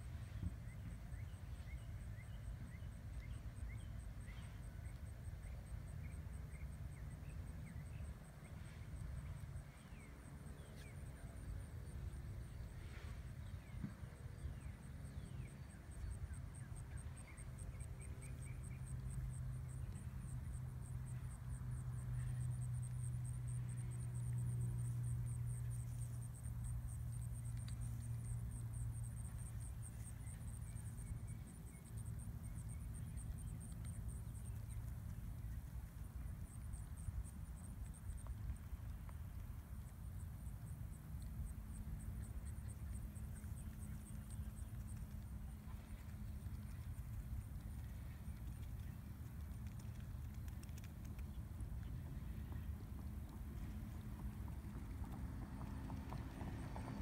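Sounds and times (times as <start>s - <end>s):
low steady rumble: 0.0s - 57.0s.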